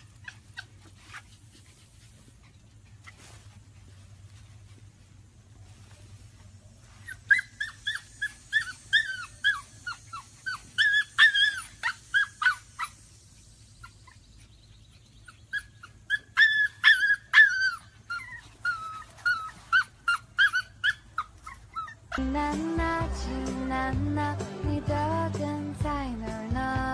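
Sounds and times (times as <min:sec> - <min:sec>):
puppy whimpering yelps: 0:00.0 - 0:01.4, 0:07.0 - 0:13.1, 0:13.8 - 0:22.2
music: 0:22.2 - 0:26.9.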